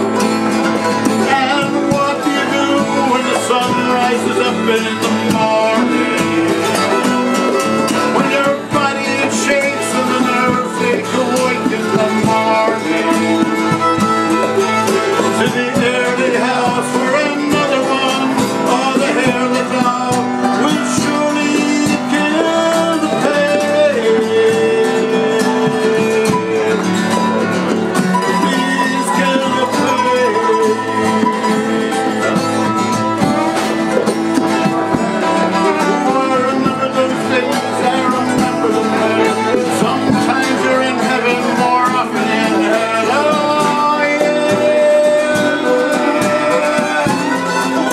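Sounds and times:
acoustic guitar: 0.0s - 47.9s
fiddle: 0.0s - 47.9s
mandolin: 0.0s - 47.9s.

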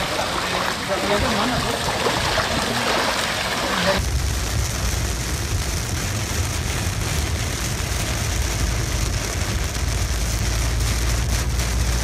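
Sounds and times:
car and tyres rumbling: 0.0s - 12.0s
heavy rain on a car: 0.0s - 12.0s.

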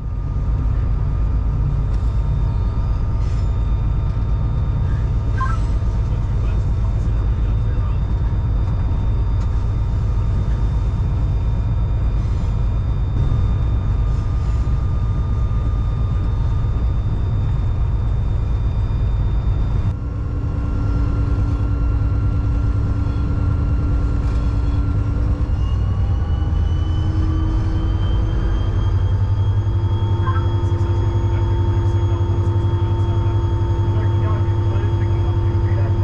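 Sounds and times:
diesel locomotive engine rumble: 0.0s - 36.0s
faint rising whining tones: 0.0s - 36.0s.

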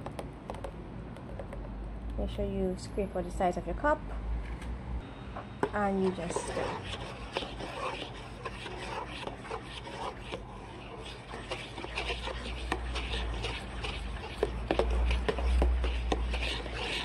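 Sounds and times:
spoon stirring and scraping in bowl: 5.6s - 17.0s.

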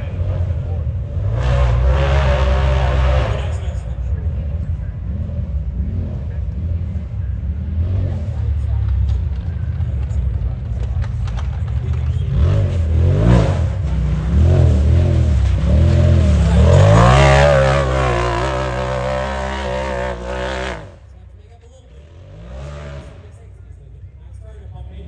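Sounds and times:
engine revving: 0.0s - 21.2s, 21.9s - 23.5s.

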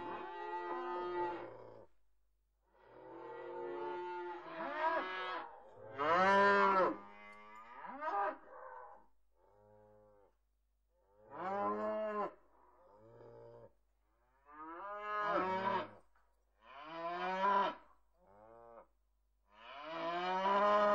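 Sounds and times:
cows mooing: 5.0s - 8.4s.

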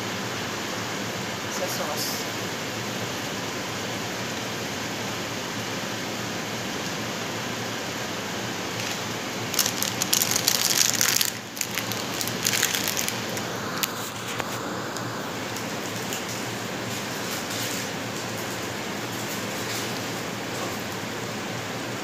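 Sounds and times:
kitchen exhaust fan whooshing: 0.0s - 22.0s
loud crackling hiss: 7.7s - 21.5s.

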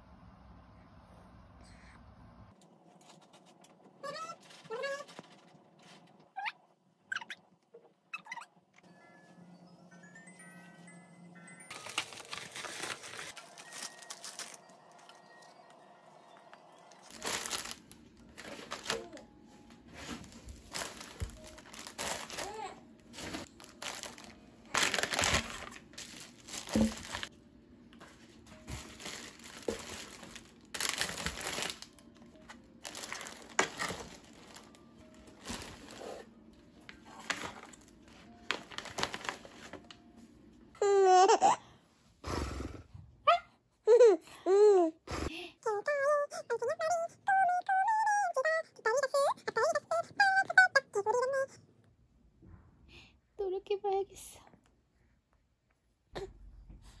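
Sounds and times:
crinkling and rustling: 2.8s - 6.3s, 11.7s - 15.5s, 16.9s - 40.1s.

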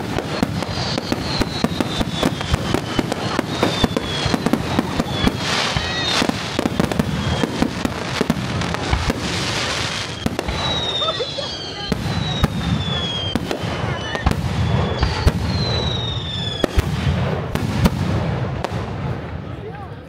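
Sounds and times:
firework whistle sliding down: 0.0s - 8.0s, 9.0s - 16.8s
firework shells bursting: 0.0s - 19.0s.

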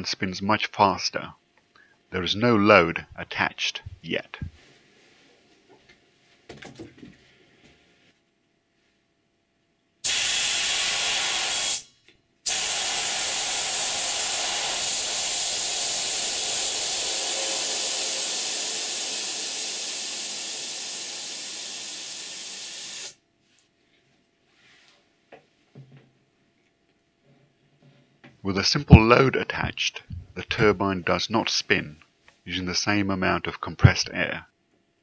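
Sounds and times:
compressed air hissing: 10.0s - 11.9s, 12.5s - 23.2s.

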